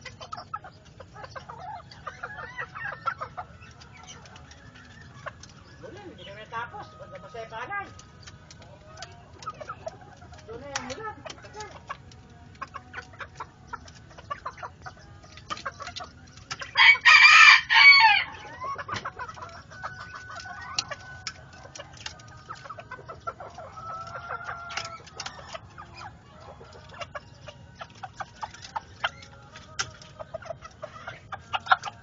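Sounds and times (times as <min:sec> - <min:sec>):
chickens clucking: 0:00.0 - 0:32.0
rooster crowing: 0:16.8 - 0:18.6.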